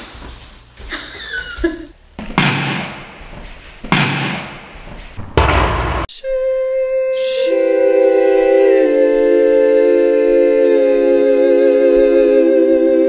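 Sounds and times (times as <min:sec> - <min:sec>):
choir chord of sustained voices: 0:06.2 - 0:13.0.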